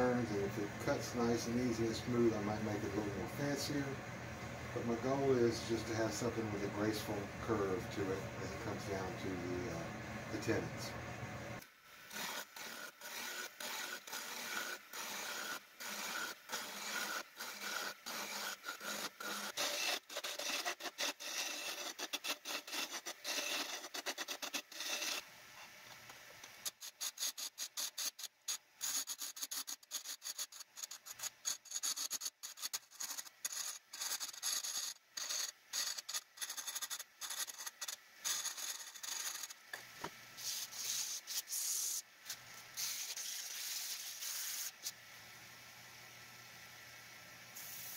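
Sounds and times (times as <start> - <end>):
lathe chisel scraping wood: 12.1 - 25.2, 28.8 - 39.6.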